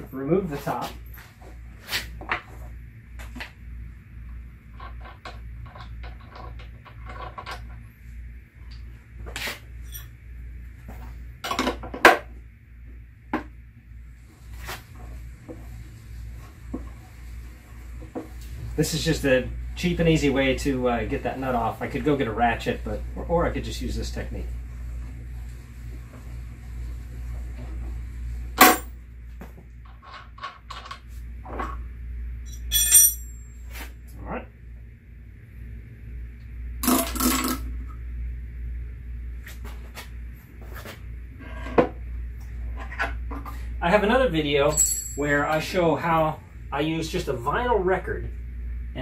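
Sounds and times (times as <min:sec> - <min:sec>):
steady low hum: 0:00.0 - 0:49.0
metallic clink: 0:32.5 - 0:33.6, 0:44.7 - 0:45.3.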